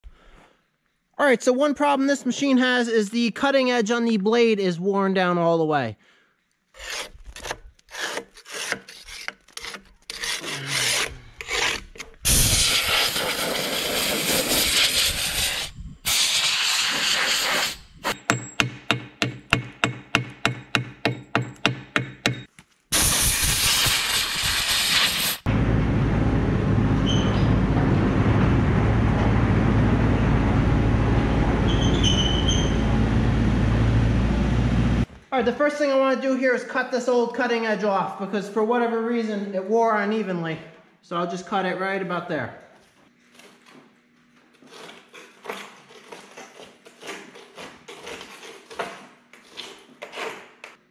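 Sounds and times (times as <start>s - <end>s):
wire brush scrubbing steel: 6.8s - 18.2s
machine noise with low hum: 25.5s - 35.2s.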